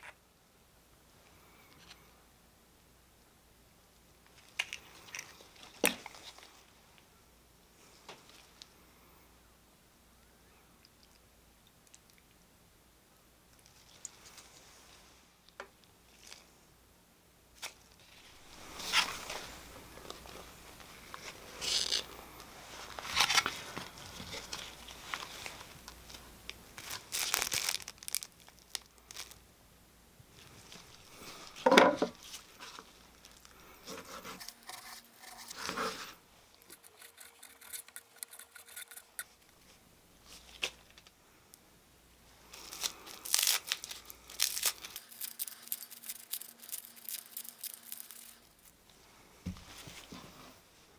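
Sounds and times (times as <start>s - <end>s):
crinkling and tearing: 21.1s - 29.4s, 42.4s - 48.8s
nori sheet tearing: 42.6s - 48.5s.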